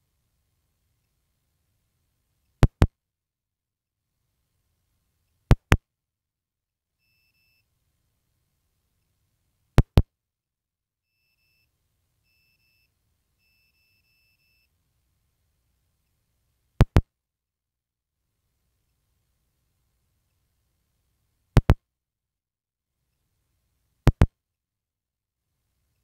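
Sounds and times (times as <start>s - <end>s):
sharp double clicks: 2.6s - 2.9s, 5.5s - 5.8s, 9.8s - 10.0s, 16.8s - 17.0s, 21.6s - 21.8s, 24.1s - 24.3s.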